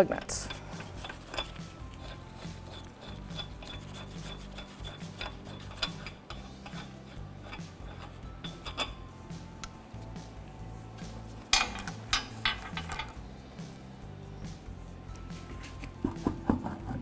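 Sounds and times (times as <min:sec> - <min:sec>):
soft background music: 0:00.0 - 0:17.0
lug nuts clicking on studs: 0:00.4 - 0:09.0, 0:11.4 - 0:13.2.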